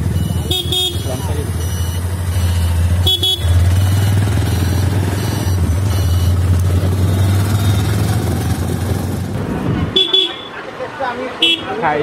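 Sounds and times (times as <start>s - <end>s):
motorbike engine running: 0.0s - 9.3s
passing traffic: 0.0s - 12.0s
wind rumbling on microphone: 8.0s - 10.0s.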